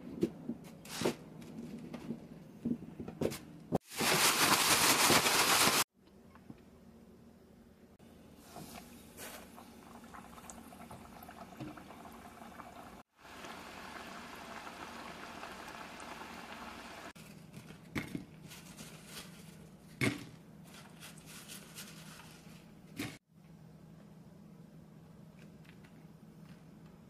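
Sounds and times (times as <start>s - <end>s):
potatoes deep-frying in oil: 8.4s - 17.1s.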